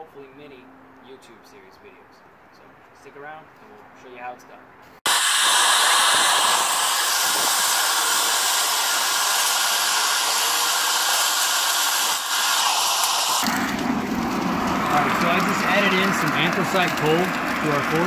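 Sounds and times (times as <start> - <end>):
forced air hissing into forge: 5.0 - 18.0.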